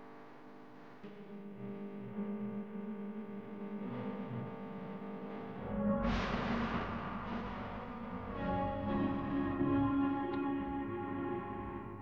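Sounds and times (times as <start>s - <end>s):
sustained chords music: 5.6s - 12.0s.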